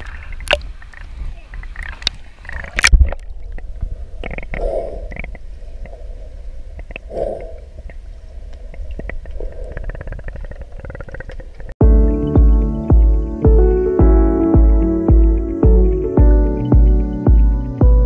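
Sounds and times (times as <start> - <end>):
small underwater clicks: 0.0 - 6.1, 6.7 - 11.8.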